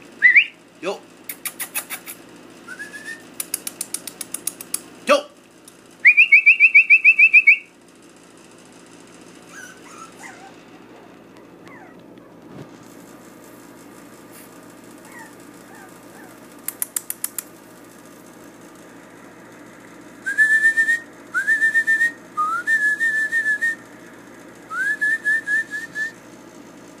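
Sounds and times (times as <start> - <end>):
person whistling: 0.2 - 0.5, 2.7 - 3.2, 6.1 - 7.7, 20.3 - 23.8, 24.7 - 26.2
sharp clicks: 3.4 - 4.9, 16.6 - 17.6
faint puppy whimpers: 9.5 - 12.4, 15.0 - 16.4.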